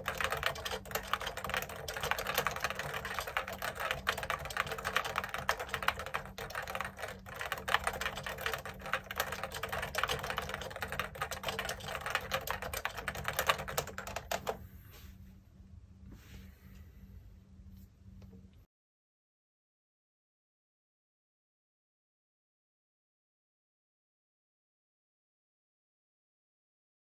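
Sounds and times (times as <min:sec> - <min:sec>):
typing on a keyboard: 0:00.0 - 0:14.6.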